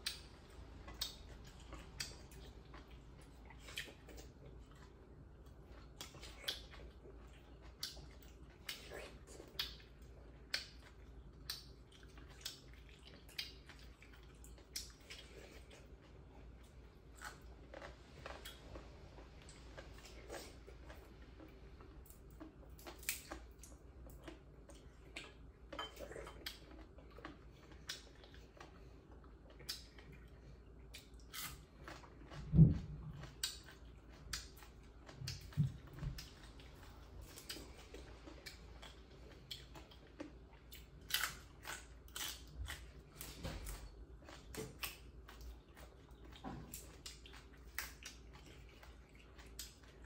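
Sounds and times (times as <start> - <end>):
people chewing food: 0.0 - 50.0
dishes clinking: 25.8 - 26.0.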